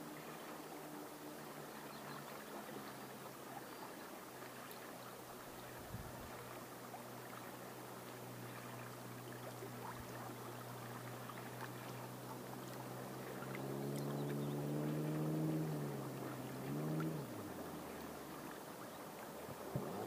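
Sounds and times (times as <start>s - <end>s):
rippling water rushing: 0.0s - 20.0s
distant engine running: 7.6s - 20.0s.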